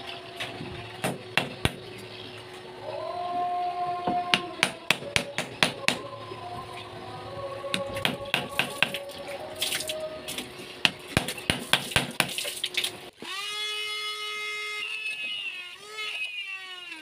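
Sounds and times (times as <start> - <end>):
electric rotary tool whining: 13.1 - 17.0.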